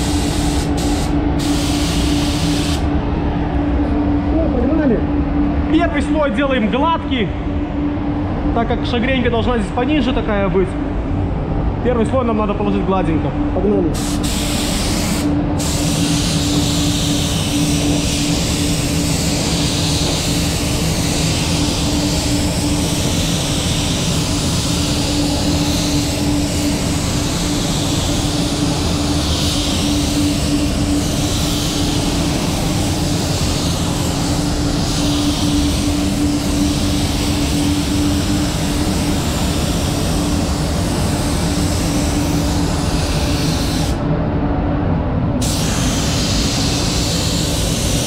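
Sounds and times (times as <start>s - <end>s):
spray gun hissing: 0.0s - 2.8s, 14.0s - 44.0s, 45.4s - 48.0s
low hum: 0.0s - 14.0s, 15.2s - 48.0s.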